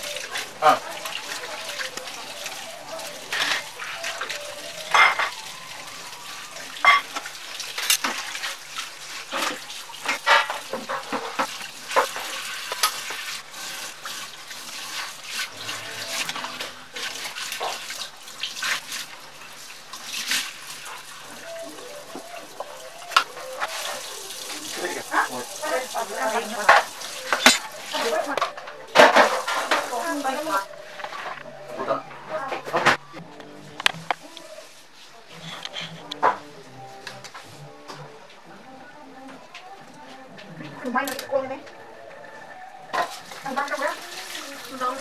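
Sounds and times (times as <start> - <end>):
metal bowl clinking against sink: 0.0 - 5.7, 6.8 - 8.4, 9.3 - 13.1, 22.7 - 31.2.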